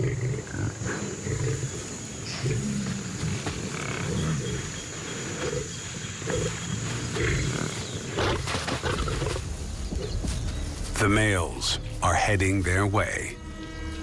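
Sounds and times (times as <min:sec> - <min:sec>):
lions growling: 0:00.0 - 0:09.4.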